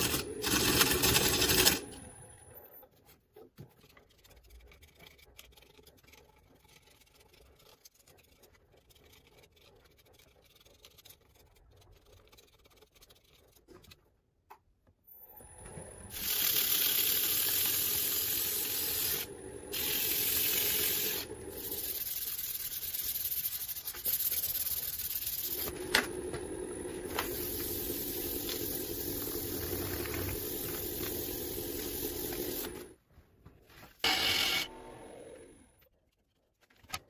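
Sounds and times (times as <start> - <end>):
hands rubbing wood: 3.0 - 14.0, 21.2 - 32.9.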